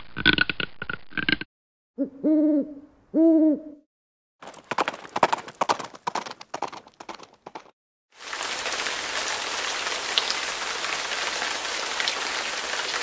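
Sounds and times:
owl hoots: 2.0s - 3.8s
clip-clopping hooves: 4.4s - 7.7s.

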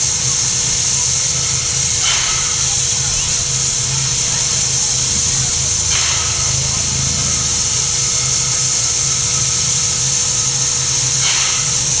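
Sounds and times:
steam hissing: 0.0s - 12.0s
thin steady whine: 0.0s - 12.0s
low throbbing mechanical beat: 0.8s - 11.8s.

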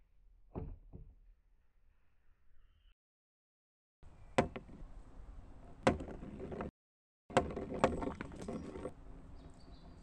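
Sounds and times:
balls knocking on wooden beam: 4.4s - 4.8s, 5.8s - 6.7s, 7.3s - 8.9s.

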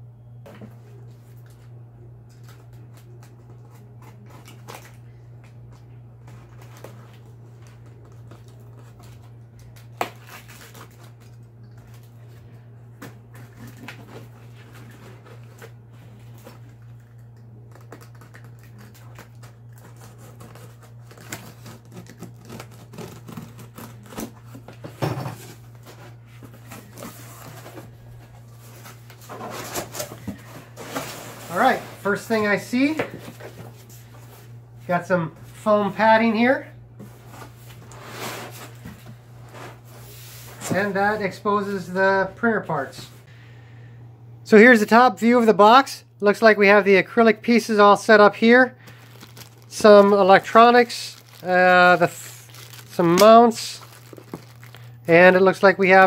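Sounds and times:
steady low hum: 0.0s - 56.0s
cardboard flaps crinkling and tearing: 6.3s - 12.1s, 17.7s - 24.8s, 48.9s - 55.2s.

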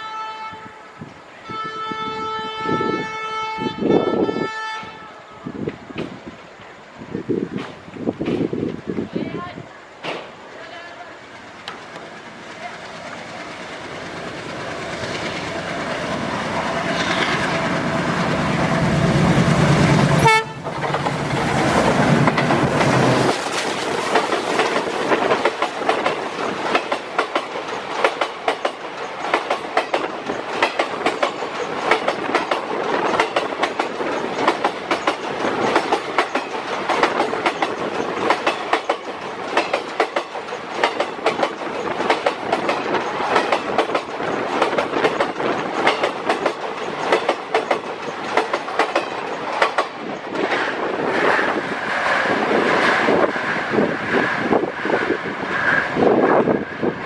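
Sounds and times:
train wheels clickety-clack: 7.5s - 8.8s, 11.3s - 57.0s
diesel locomotive engine running: 11.2s - 27.1s.

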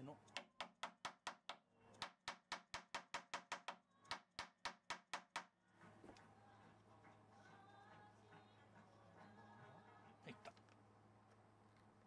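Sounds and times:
hammer knocking on wood: 0.4s - 5.5s.

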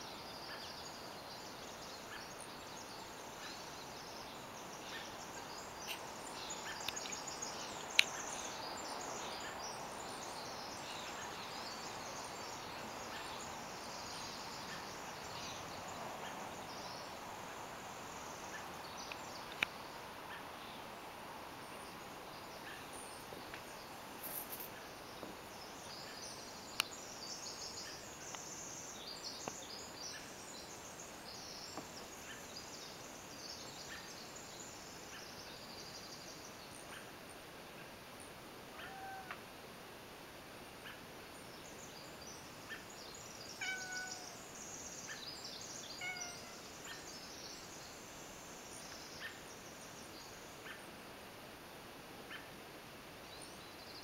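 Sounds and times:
faint steady hiss: 0.0s - 54.0s
birds chirping and calling: 43.6s - 44.4s, 45.0s - 47.1s.

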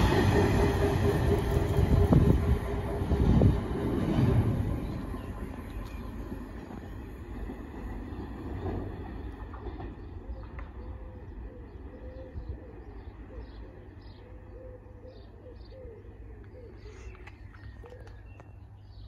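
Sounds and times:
freight train rumble: 0.0s - 14.5s.

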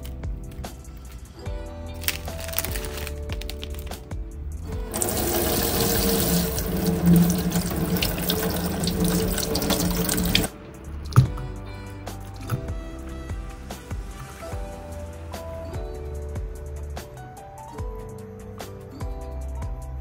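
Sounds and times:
soft background music: 0.0s - 20.0s
tap water splashing in sink: 4.9s - 10.5s.

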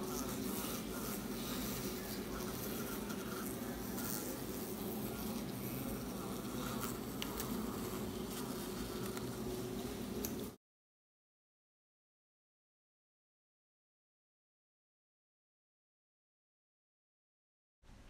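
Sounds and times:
bees buzzing: 0.0s - 10.6s.

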